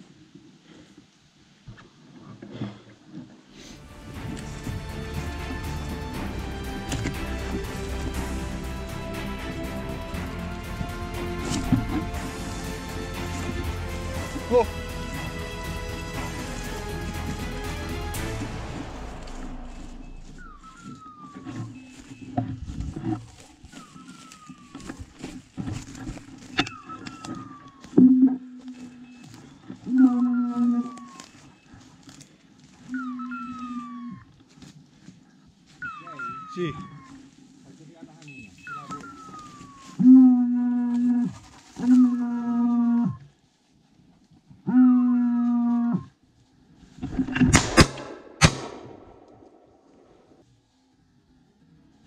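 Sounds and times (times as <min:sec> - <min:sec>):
steady low tone: 0:03.6 - 0:32.1
footsteps crunching through dry leaves: 0:03.6 - 0:40.1, 0:40.9 - 0:44.6
descending electronic whistle: 0:19.5 - 0:22.3.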